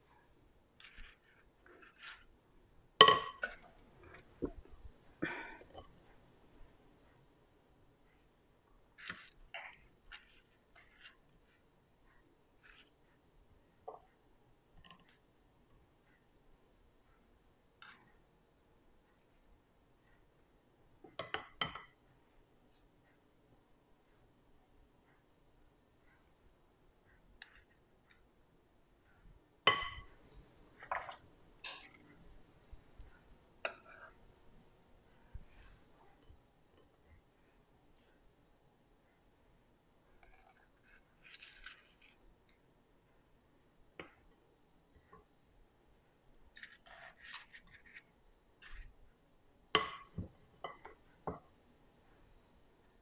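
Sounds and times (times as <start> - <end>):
metal spoon clinking and scraping: 0.8 - 2.3
spoon scraping batter from bowl: 0.8 - 2.4, 40.1 - 42.2, 46.6 - 48.9.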